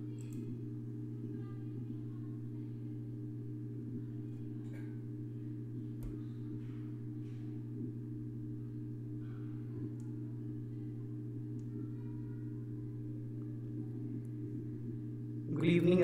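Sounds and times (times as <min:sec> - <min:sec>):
steady low hum: 0:00.0 - 0:16.0
faint clicks: 0:00.2 - 0:00.5.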